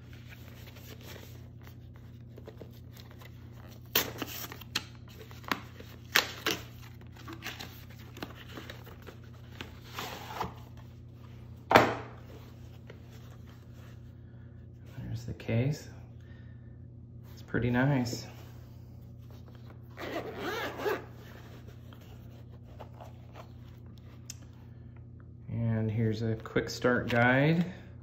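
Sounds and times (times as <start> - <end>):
packaging rustling and scraping: 0.0 - 11.0
low steady hum: 0.0 - 28.0.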